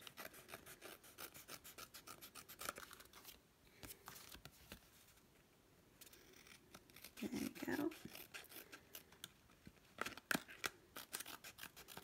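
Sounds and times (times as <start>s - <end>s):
scissors snipping paper: 6.5s - 9.4s, 10.0s - 12.0s.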